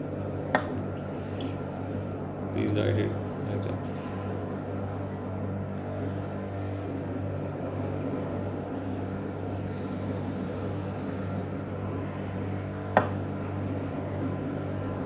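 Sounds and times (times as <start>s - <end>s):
low droning hum: 0.0s - 15.0s.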